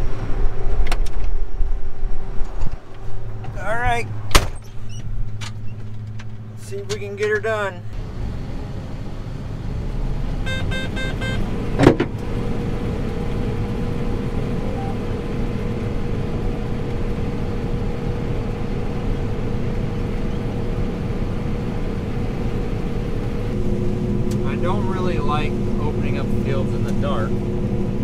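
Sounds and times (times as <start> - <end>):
combine harvester drone: 6.5 - 28.0
short electronic beeps: 14.6 - 15.0.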